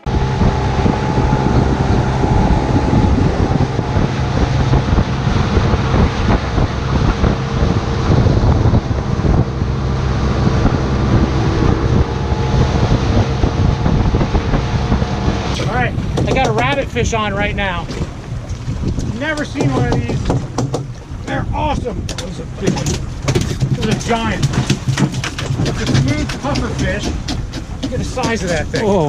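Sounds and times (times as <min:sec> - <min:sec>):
motorboat engine running: 0:00.0 - 0:29.0
water rushing past hull: 0:00.0 - 0:29.0
wind buffeting microphone: 0:00.0 - 0:29.0.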